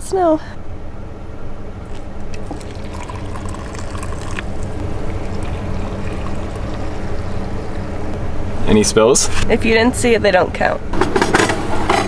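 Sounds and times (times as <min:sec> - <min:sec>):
low hum: 0:01.4 - 0:08.7
water poured into metal mugs: 0:01.9 - 0:08.8.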